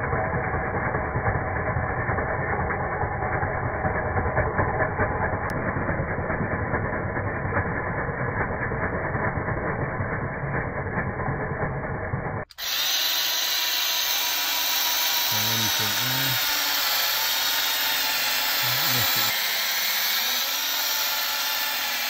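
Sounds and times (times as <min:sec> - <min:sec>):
electric hedge trimmer running: 0:00.2 - 0:08.2, 0:12.5 - 0:22.0
blades cutting grass and leaves: 0:12.5 - 0:22.0.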